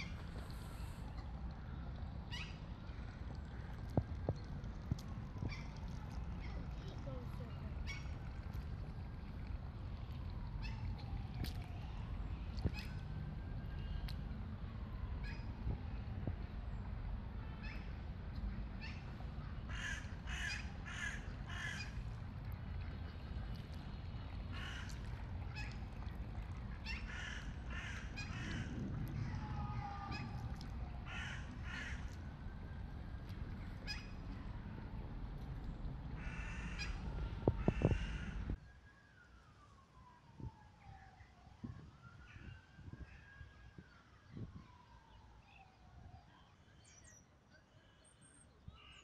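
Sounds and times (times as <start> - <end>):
steady low rumble: 0.0 - 38.6
crows cawing: 19.7 - 22.0, 24.5 - 25.0, 26.9 - 28.7, 29.8 - 32.2, 36.2 - 38.5.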